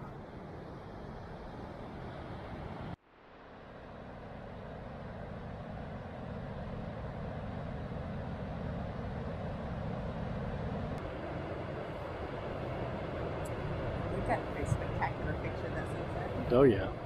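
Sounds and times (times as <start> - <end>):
ocean surf breaking on beach: 8.7 - 17.0.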